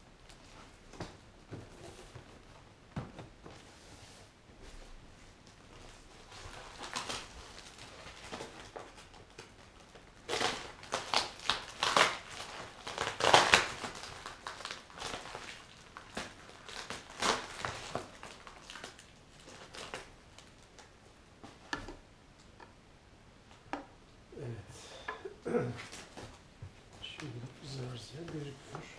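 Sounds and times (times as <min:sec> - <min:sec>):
plastic packaging crinkling: 0:05.4 - 0:21.0.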